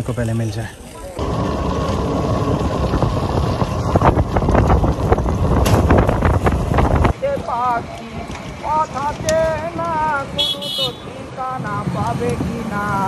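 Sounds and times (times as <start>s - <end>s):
vehicle rumble: 0.0s - 13.0s
wind buffeting microphone: 1.2s - 10.6s.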